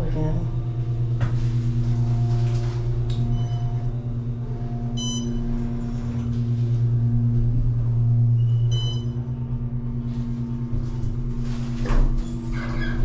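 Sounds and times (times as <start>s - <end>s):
elevator low hum: 0.0s - 13.0s.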